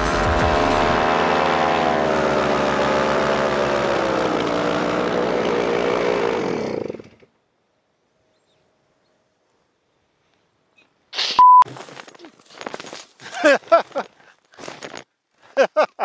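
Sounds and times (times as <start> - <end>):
paramotor engine running: 0.0 - 7.3.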